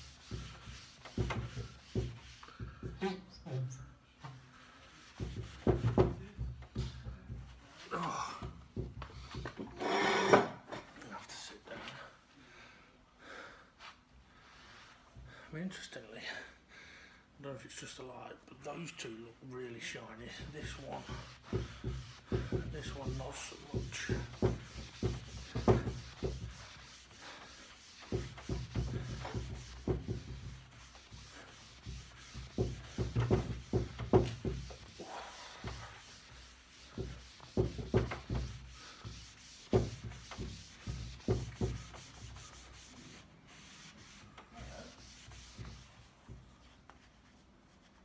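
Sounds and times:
pad rubbing on wooden tabletop: 0.0 - 2.5, 20.4 - 48.0.

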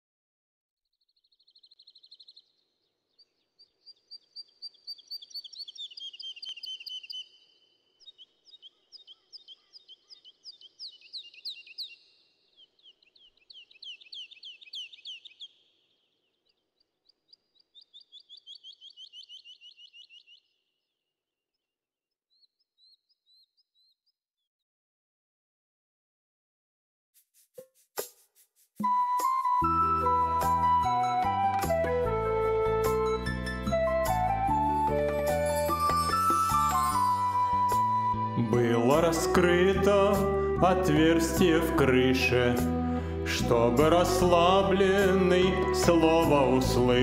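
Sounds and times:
faint bird chirps: 0.8 - 24.5
songbirds trilling: 1.0 - 21.7, 22.3 - 24.2.

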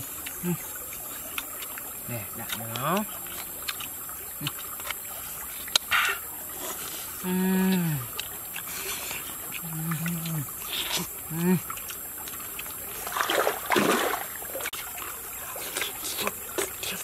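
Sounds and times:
person humming closed-mouth: 0.0 - 0.7, 7.2 - 8.2, 9.6 - 11.7
steady background hiss: 0.0 - 17.0.

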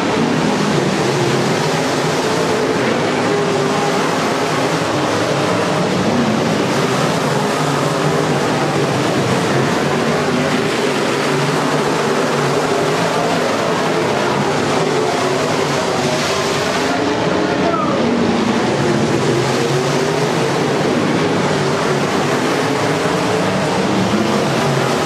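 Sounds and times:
race car engines droning: 0.0 - 25.0.

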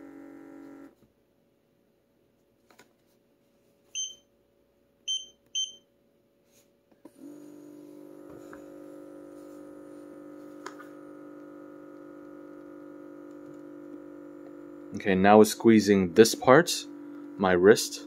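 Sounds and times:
short high beeps: 4.0 - 4.2, 5.1 - 5.8
air pump humming: 7.1 - 18.0.

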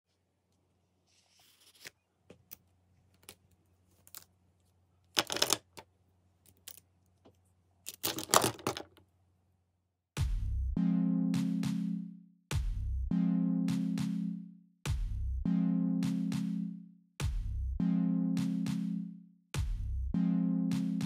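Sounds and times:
pens clicking on paper: 5.2 - 5.8
music: 10.2 - 21.0.

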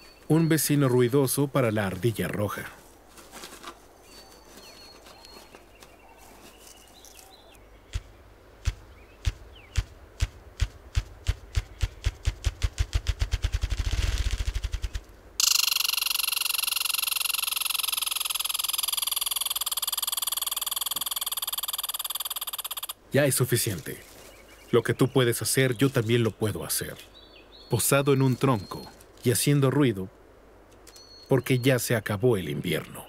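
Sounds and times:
grouse wing-beat drumming: 7.9 - 22.9
squirrel rattling chatter: 14.5 - 23.0.

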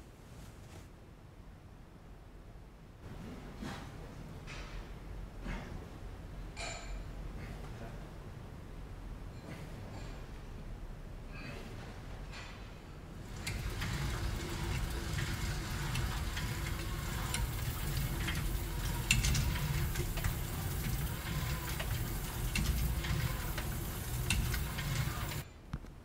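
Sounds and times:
exercise bike flywheel whirring: 13.2 - 25.5
mechanism clicks and rattles: 13.2 - 25.5.

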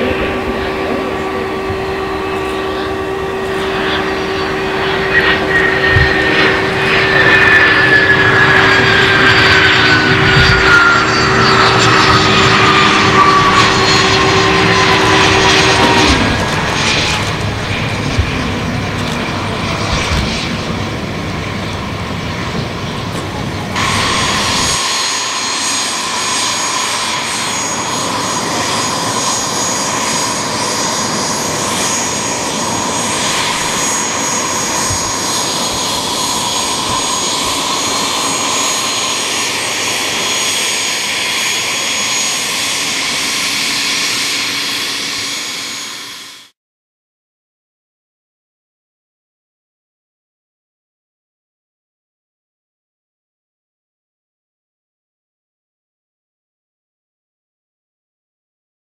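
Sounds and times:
jet engines whining: 0.0 - 46.6
propeller engine running: 0.0 - 46.6.

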